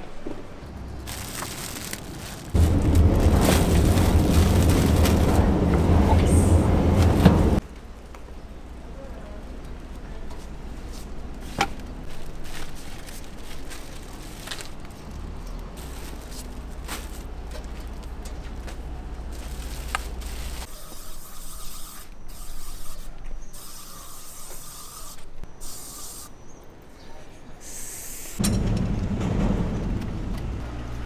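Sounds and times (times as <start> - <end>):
low steady rumble: 0.5 - 13.0, 28.4 - 31.0
garden hose nozzle spraying: 20.6 - 26.3
sharp knocks: 28.4 - 31.0.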